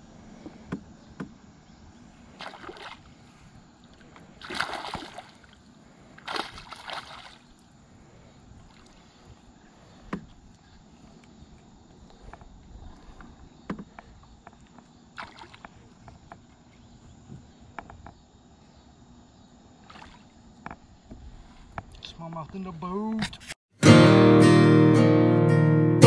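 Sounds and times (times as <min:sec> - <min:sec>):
fish splashing at water surface: 0:02.4 - 0:03.2, 0:04.0 - 0:07.6, 0:15.2 - 0:15.8.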